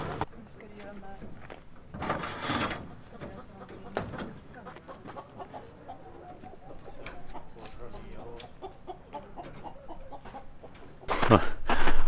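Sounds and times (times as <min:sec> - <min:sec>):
chickens clucking: 0:01.8 - 0:11.4.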